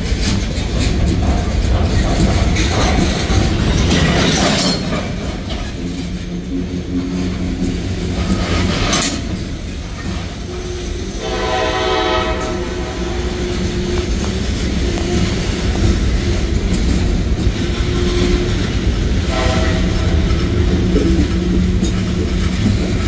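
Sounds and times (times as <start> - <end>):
wheel clicks over rail joints: 0.0 - 10.5
freight cars rolling by: 0.0 - 23.0
train horn: 10.4 - 14.2, 19.2 - 20.4.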